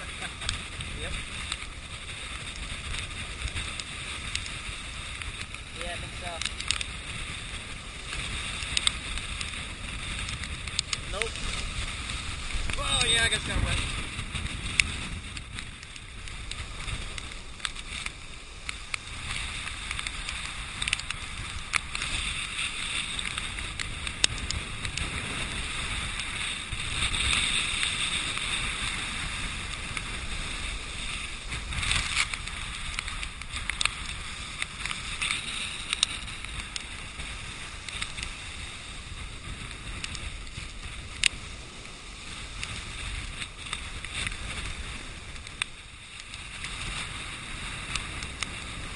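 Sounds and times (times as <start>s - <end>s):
storm surf breaking on rocks: 0.0s - 48.9s
wind buffeting microphone: 0.0s - 48.9s
sharp ticks: 2.3s - 28.1s, 29.6s - 38.3s.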